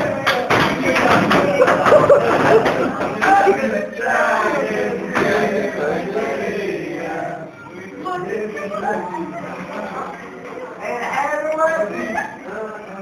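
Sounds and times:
men chanting together: 0.0s - 9.1s.

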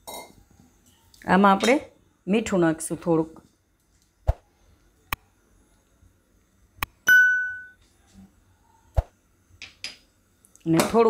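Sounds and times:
bell-like ding: 7.1s - 7.8s.

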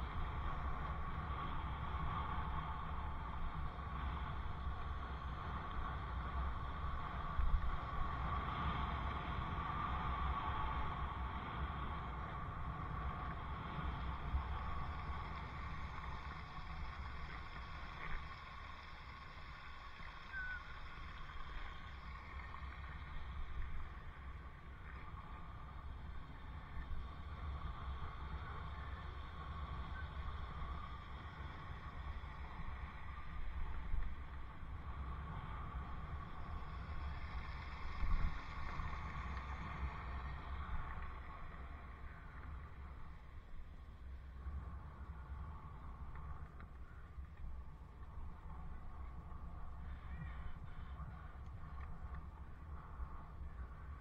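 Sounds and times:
wind rumbling on microphone: 0.0s - 54.0s
faint chirp: 18.7s - 22.9s.

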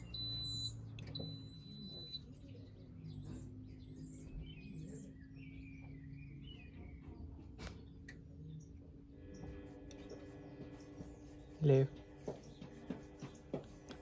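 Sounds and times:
high electronic beep: 0.0s - 2.4s
birds chirping: 0.0s - 14.0s
faint low machine hum: 0.0s - 14.0s.

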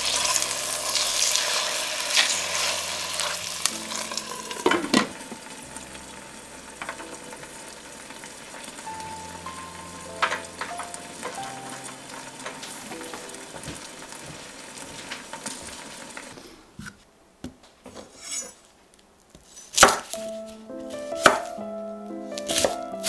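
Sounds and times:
soft background music: 0.0s - 16.2s, 20.0s - 23.0s
pan simmering with soft sizzle: 0.0s - 17.0s
knife striking cutting board: 21.2s - 21.5s.

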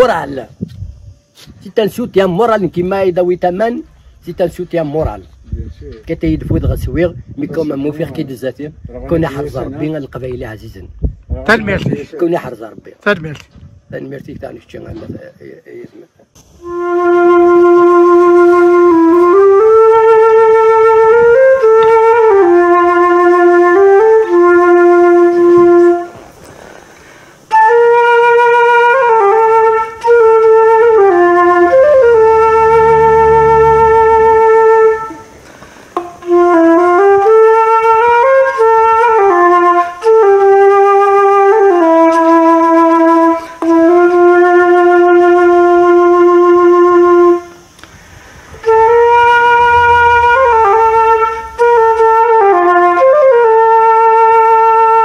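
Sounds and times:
solo flute melody: 16.4s - 26.4s, 27.5s - 55.0s.

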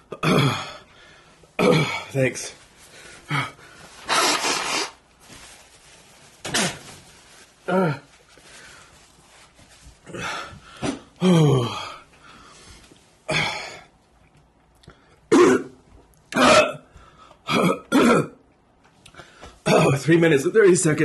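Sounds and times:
man groaning and gasping: 1.6s - 2.1s, 3.3s - 3.6s, 7.7s - 8.1s, 10.1s - 12.0s
man coughing: 1.6s - 2.2s, 15.3s - 15.8s, 17.5s - 18.4s, 19.6s - 20.1s.

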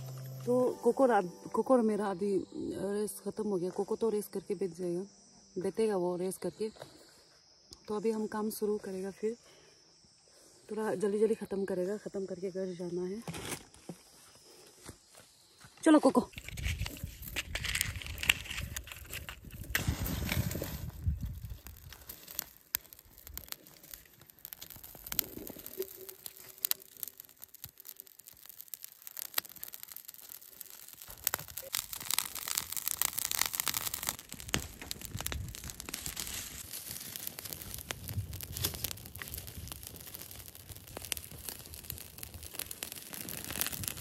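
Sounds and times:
brush fire crackling: 0.0s - 4.0s, 14.4s - 44.0s
dry stalks rustling: 16.3s - 44.0s.

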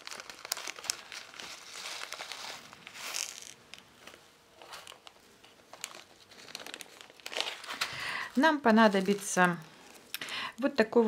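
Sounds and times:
plastic bag crinkling: 0.0s - 10.2s
beads tipped onto fabric: 2.9s - 3.9s.

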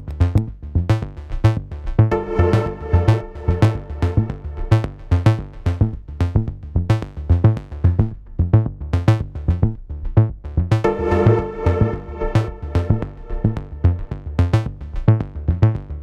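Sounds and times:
plucked synth notes: 2.1s - 5.6s, 10.8s - 14.7s.

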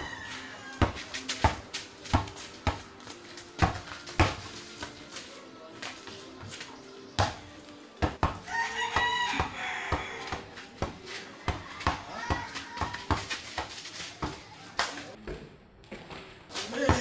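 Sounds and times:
rooster crowing: 0.0s - 1.1s, 8.4s - 10.4s
basketball bouncing on dirt: 0.0s - 5.1s, 7.2s - 17.0s.

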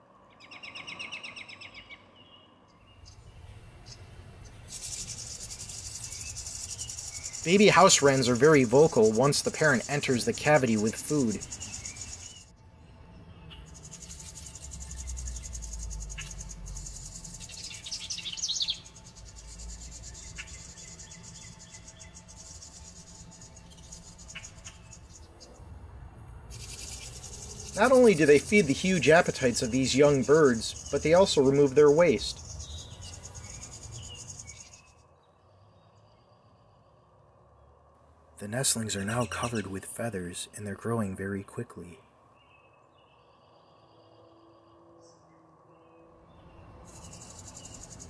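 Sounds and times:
wren singing bubbling song: 3.8s - 12.5s, 13.5s - 25.5s, 26.5s - 35.0s, 46.4s - 48.0s
high fast-pulsing buzz: 4.7s - 12.4s, 26.5s - 34.4s
nestlings begging chatter: 4.7s - 12.5s, 13.6s - 25.5s, 26.5s - 34.8s, 46.8s - 48.0s.

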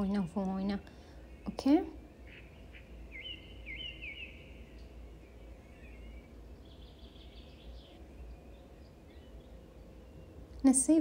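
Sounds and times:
bird song: 0.0s - 11.0s
low background hum: 0.0s - 11.0s.

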